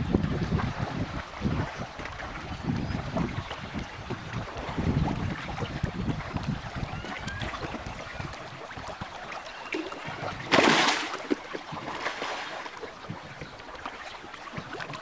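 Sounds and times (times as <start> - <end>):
fish splashing at water surface: 9.6 - 12.8
loud rushing splash: 10.3 - 11.3.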